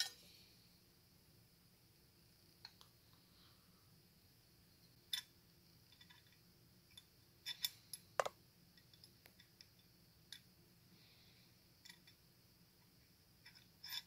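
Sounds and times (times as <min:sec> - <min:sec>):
small metallic clicks and clinks: 0:05.9 - 0:10.5, 0:11.8 - 0:12.2.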